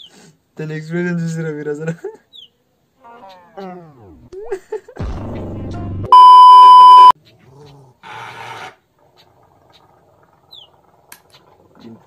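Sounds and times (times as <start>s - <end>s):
high-pitched censor beep: 6.1s - 7.2s
small dog growling: 7.3s - 12.0s.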